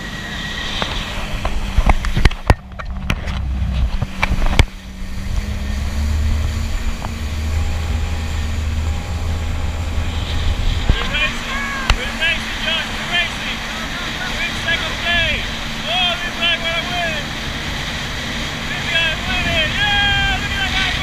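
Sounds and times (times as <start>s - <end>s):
jet ski engine running: 0.0s - 21.0s
water rushing: 0.0s - 21.0s
wind on the microphone: 0.4s - 12.4s.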